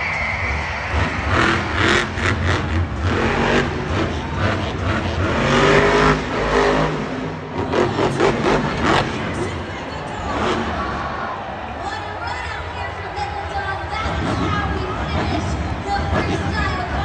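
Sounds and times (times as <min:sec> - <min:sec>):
truck engine revving hard: 0:00.7 - 0:11.3.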